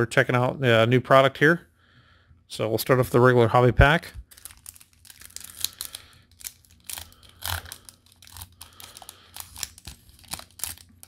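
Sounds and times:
foil wrapper crinkling and tearing: 4.2s - 11.0s.

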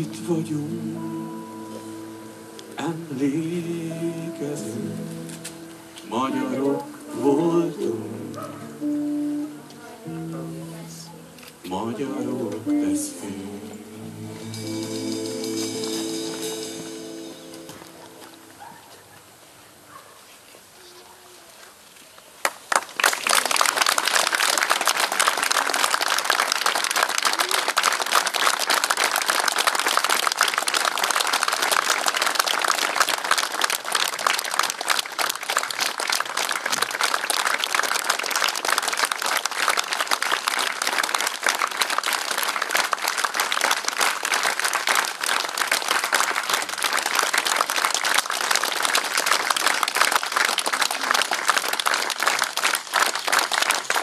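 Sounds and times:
crowd applauding: 22.4s - 54.0s.

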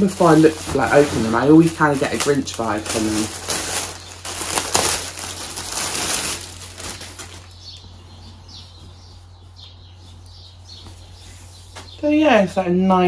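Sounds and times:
cloth handling: 0.0s - 7.5s
plastic bag crinkling: 0.0s - 8.0s.

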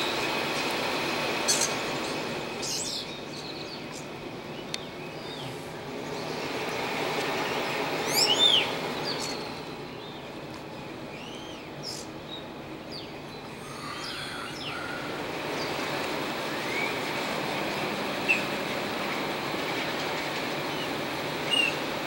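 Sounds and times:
steady background rumble: 0.0s - 22.0s
birds whistling calls: 1.4s - 17.3s, 18.1s - 18.7s, 20.1s - 21.9s.

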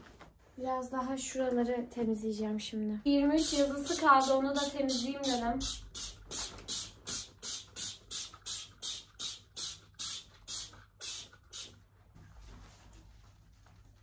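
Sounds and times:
spray bottle spritzing: 3.4s - 11.8s.

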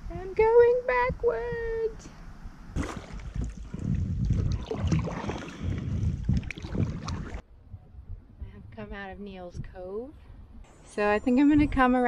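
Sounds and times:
wind rumbling on microphone: 0.0s - 12.0s
paddle splashes: 2.8s - 7.4s
water sloshing around hull: 2.8s - 7.4s.

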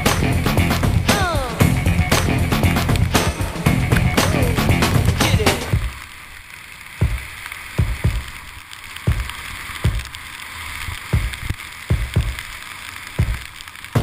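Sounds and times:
skis sliding over wet snow: 2.7s - 14.0s
dull thuds: 7.0s - 8.3s, 9.1s - 10.1s, 11.2s - 12.4s, 13.2s - 14.0s.

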